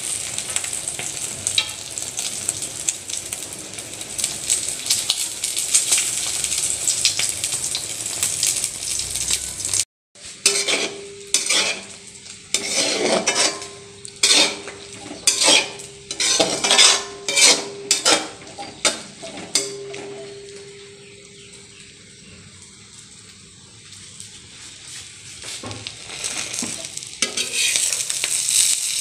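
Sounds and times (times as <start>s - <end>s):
egg sizzling in a frying pan: 0.0s - 29.0s
metal spatula scraping a pan: 10.2s - 21.1s, 26.0s - 29.0s.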